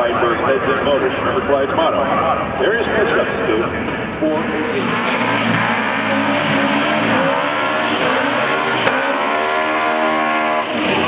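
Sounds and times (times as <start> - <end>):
car engines revving hard: 3.1 - 11.0.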